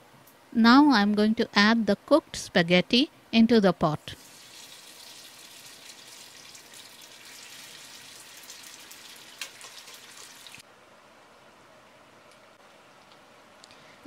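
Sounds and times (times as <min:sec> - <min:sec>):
oil sizzling and crackling: 0:04.0 - 0:10.6.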